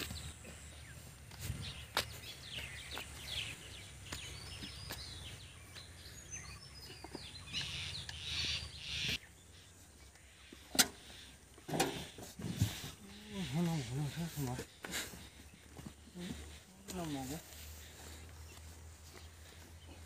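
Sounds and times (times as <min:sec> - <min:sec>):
birds chirping: 0:00.0 - 0:20.0
hand hoe scraping rock and soil: 0:11.6 - 0:15.0.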